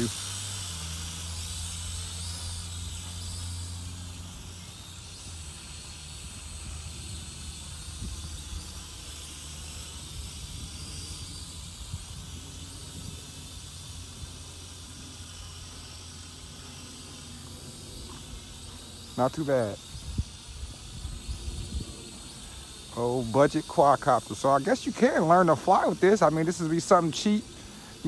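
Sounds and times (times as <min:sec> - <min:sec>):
steady hiss: 0:00.0 - 0:28.0
wind buffeting microphone: 0:06.1 - 0:14.4, 0:19.8 - 0:22.8.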